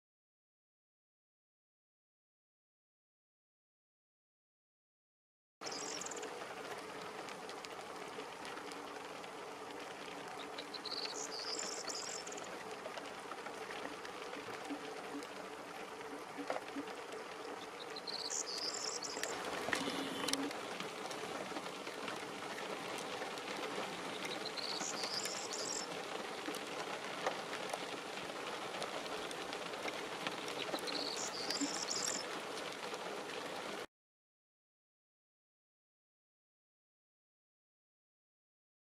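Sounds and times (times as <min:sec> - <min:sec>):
bird singing: 0:05.6 - 0:06.3, 0:10.4 - 0:12.5, 0:17.5 - 0:20.5, 0:24.1 - 0:25.9, 0:30.8 - 0:32.2
rain hissing: 0:05.6 - 0:33.9.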